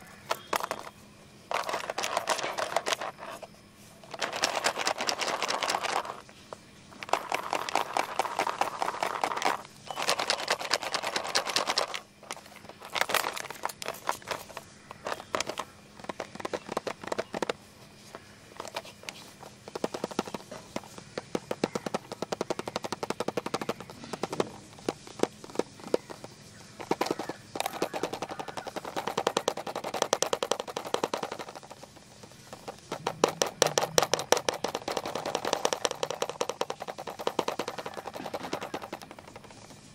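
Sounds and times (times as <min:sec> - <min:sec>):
fingernails scratching plastic box: 0:07.0 - 0:17.6, 0:18.6 - 0:39.8.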